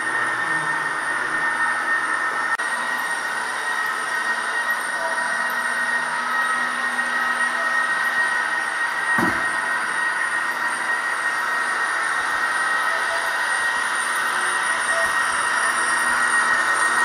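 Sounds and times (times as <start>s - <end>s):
high steady whine: 0.0s - 17.0s
model train rolling on metal track: 2.7s - 17.0s.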